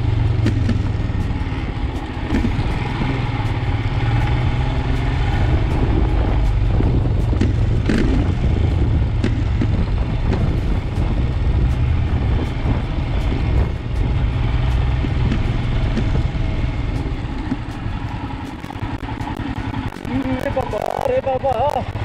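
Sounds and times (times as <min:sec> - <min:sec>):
motorcycle engine running: 0:00.0 - 0:22.0
wind rumble on microphone: 0:00.0 - 0:22.0.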